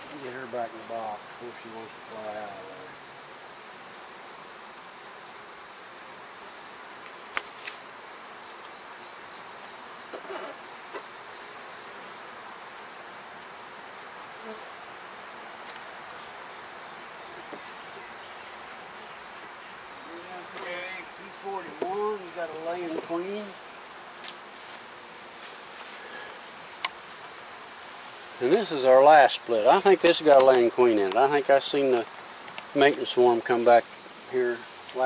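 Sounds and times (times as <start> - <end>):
high-pitched insect chorus: 0.0 - 35.0
wooden hive boxes knocking: 20.4 - 23.3.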